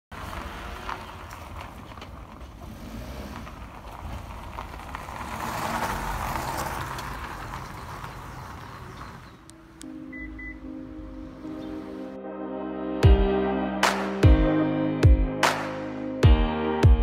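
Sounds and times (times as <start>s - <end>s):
car passing by: 0.1s - 9.8s.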